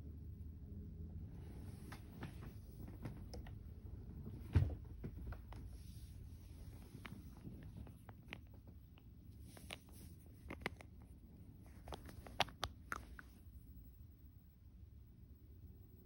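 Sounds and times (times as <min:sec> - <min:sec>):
phone rubbing against fabric: 0:05.4 - 0:10.9.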